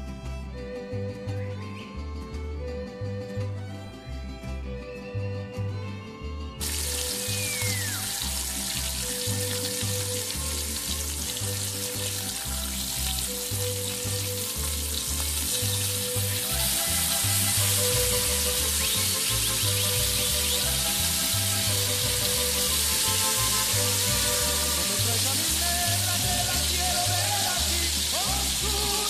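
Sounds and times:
background music with bass line: 0:00.0 - 0:29.0
onion frying in hot oil: 0:06.6 - 0:29.0.

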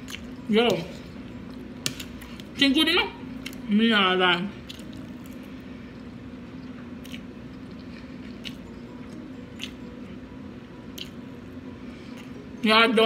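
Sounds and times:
steady low hum: 0:00.0 - 0:13.0
chewing food: 0:04.6 - 0:10.2, 0:10.9 - 0:11.3.

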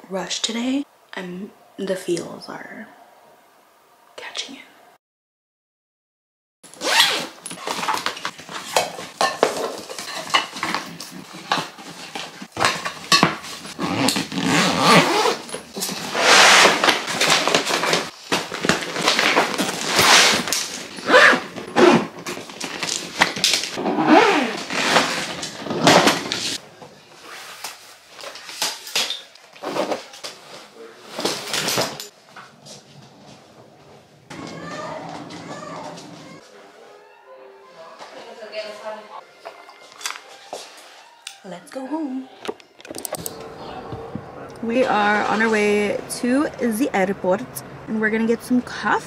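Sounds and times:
clothes rustling: 0:06.8 - 0:26.6
plastic bottles clattering: 0:07.4 - 0:23.8.

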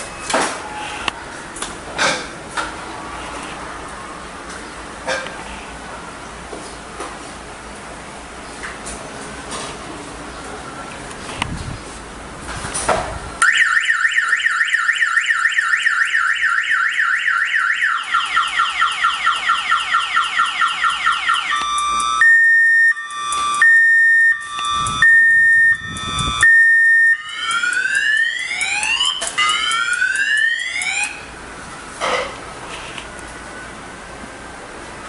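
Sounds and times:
electronic alarm siren: 0:13.4 - 0:31.4.

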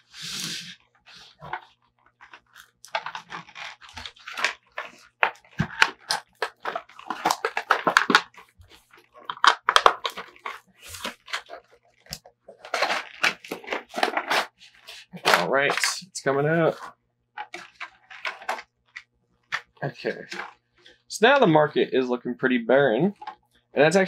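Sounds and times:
cardboard and paper tearing: 0:02.4 - 0:11.7, 0:12.6 - 0:15.9.

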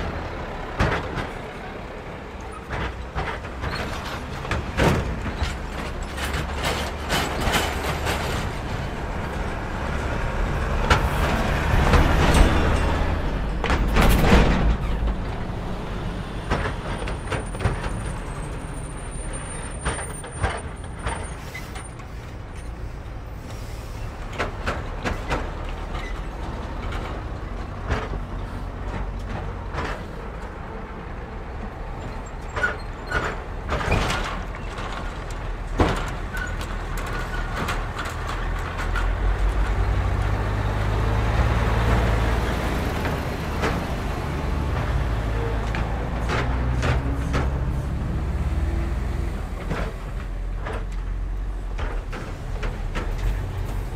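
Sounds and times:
heavy truck rumble: 0:00.0 - 0:53.9
rumble of tyres and engines: 0:00.0 - 0:53.9
wheels knocking over rails: 0:31.6 - 0:53.9.

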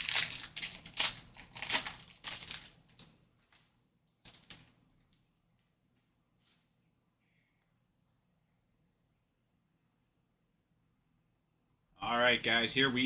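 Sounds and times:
foil pack tearing and crinkling: 0:00.0 - 0:03.1.

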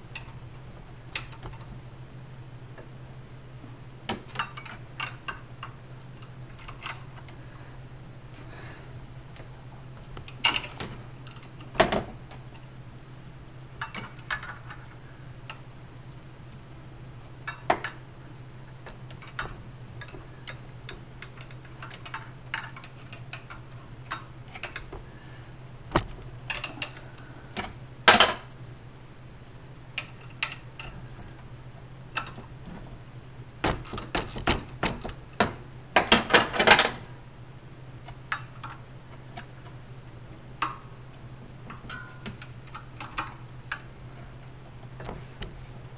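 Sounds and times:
steady low hum: 0:00.0 - 0:45.9.

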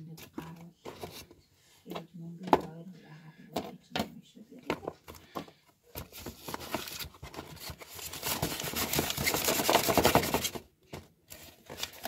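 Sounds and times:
cardboard box rustling: 0:05.9 - 0:12.0.

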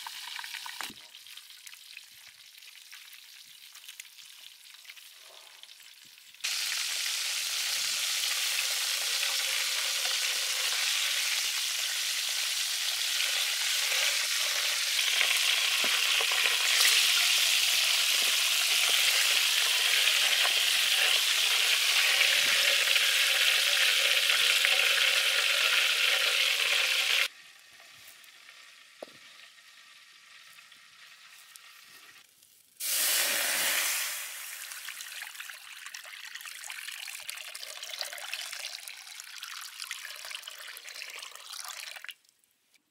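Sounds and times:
duck sizzling in hot oil: 0:00.0 - 0:35.8
coconut water splashing into wok: 0:06.4 - 0:27.3, 0:32.8 - 0:42.2.

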